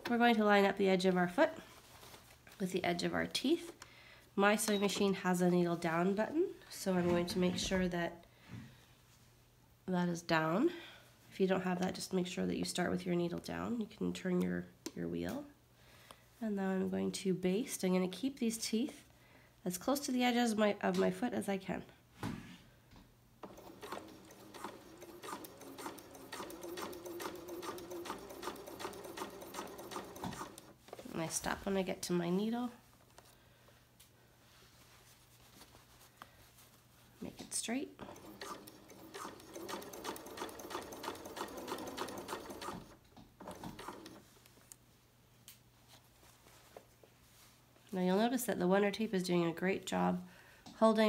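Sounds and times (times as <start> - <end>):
sewing machine stitching slowly: 23.4 - 31.0, 38.0 - 44.3.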